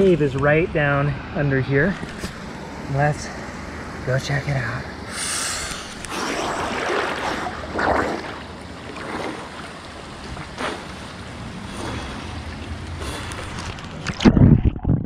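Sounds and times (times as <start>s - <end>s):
water splashing around a swimmer: 5.8s - 14.8s.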